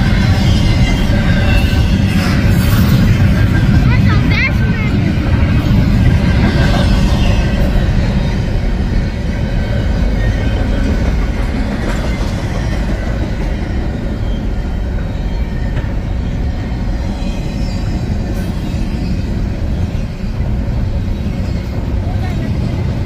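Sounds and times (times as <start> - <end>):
freight train wheels rumbling: 0.0 - 23.0.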